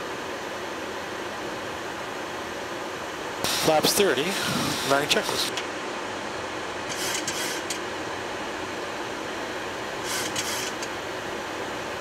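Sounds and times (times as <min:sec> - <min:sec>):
air-conditioning hiss: 0:00.0 - 0:12.0
brief high hissing bursts: 0:10.1 - 0:10.8.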